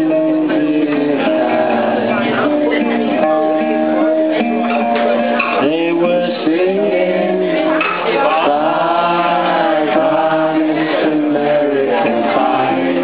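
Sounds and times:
voices singing together: 0.0s - 2.7s, 5.6s - 13.0s
strummed acoustic guitar: 0.0s - 13.0s.

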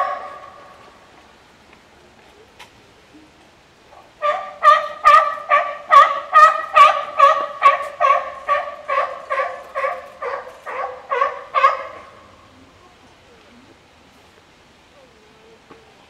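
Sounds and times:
animal calling in pitched notes: 4.0s - 13.8s.

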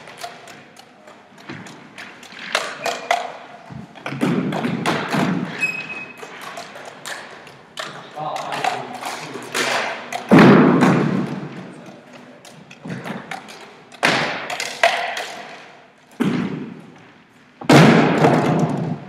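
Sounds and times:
heavy thuds echoing in hall: 1.4s - 5.6s, 7.2s - 11.9s, 14.0s - 19.0s.

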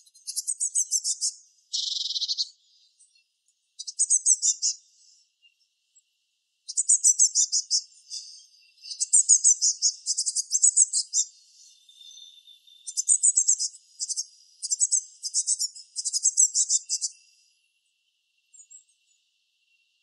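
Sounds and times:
fledgling bird high chirps: 0.0s - 3.2s, 3.8s - 5.2s, 6.7s - 17.5s.

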